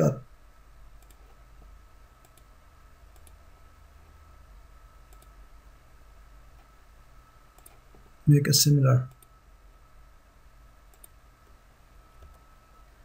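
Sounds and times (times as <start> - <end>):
low background hum: 0.0 - 13.0
computer mouse clicks: 1.0 - 1.4, 2.2 - 2.5, 3.1 - 3.4, 5.1 - 5.4, 7.6 - 7.8, 9.1 - 9.3, 10.9 - 11.2.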